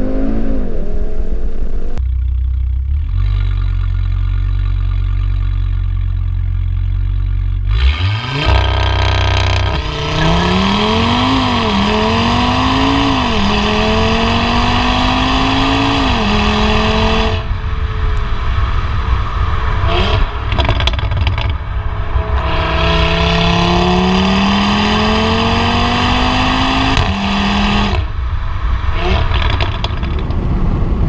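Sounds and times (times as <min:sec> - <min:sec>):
engine revving and accelerating: 0:00.0 - 0:02.0, 0:07.6 - 0:30.1
car engine idling with deep rumble: 0:01.0 - 0:12.3, 0:17.3 - 0:23.2.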